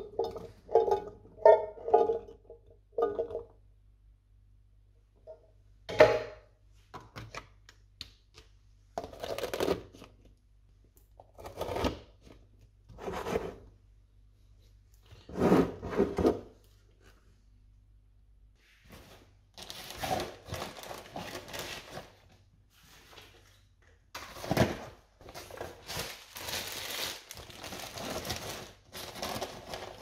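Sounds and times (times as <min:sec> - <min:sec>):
glass containers clattering: 0:00.0 - 0:03.6
plastic bag rustling: 0:18.9 - 0:22.4, 0:24.2 - 0:30.0.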